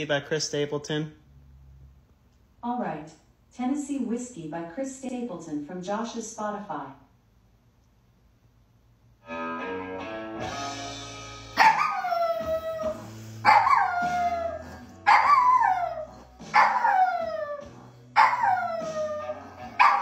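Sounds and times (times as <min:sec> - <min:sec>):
music: 0:09.2 - 0:20.0
dog howling: 0:11.6 - 0:20.0.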